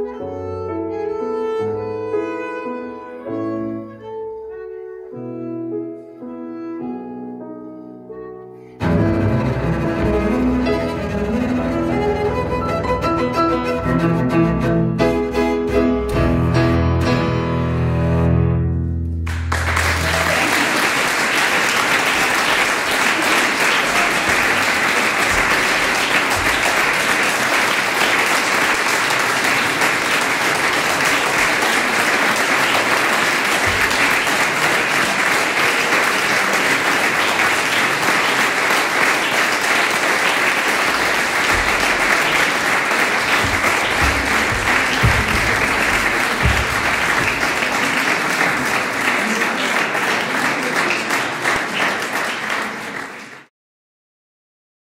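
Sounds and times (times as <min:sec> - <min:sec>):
audience applauding: 0:19.2 - 0:53.5
low thumps: 0:43.3 - 0:47.4.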